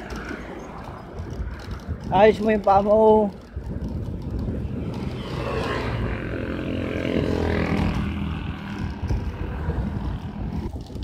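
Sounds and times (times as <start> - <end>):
wind on microphone: 0.0 - 11.0
motor vehicle engine drone: 3.8 - 11.0.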